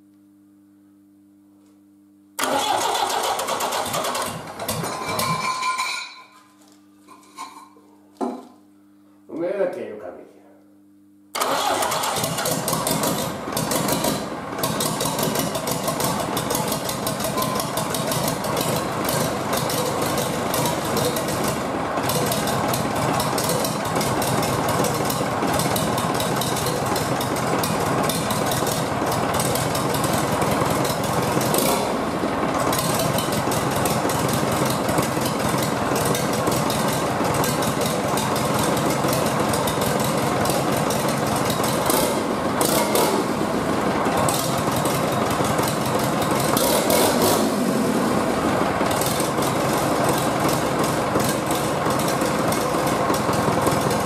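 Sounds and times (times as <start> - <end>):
diesel engine running: 11.4 - 54.0.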